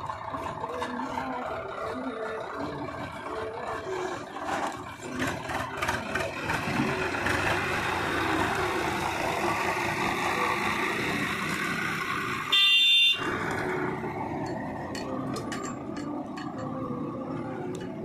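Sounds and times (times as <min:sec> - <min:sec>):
tractor engine running: 0:00.0 - 0:18.0
high horn beep: 0:12.5 - 0:13.2.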